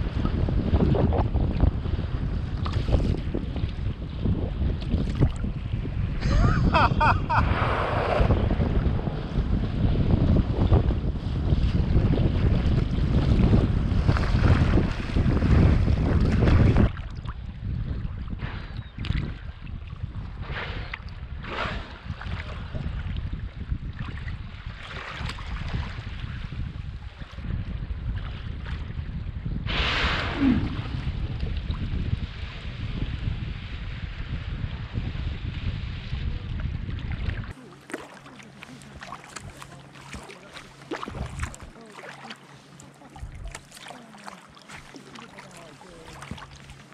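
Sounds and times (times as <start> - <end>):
water splashing against kayak hull: 0.0 - 29.0, 29.7 - 46.9
wind rumbling on microphone: 0.0 - 46.9
paddle splashing and dripping: 2.4 - 3.8, 4.7 - 5.8, 11.6 - 18.3, 18.9 - 20.0, 23.9 - 26.2, 36.9 - 46.9.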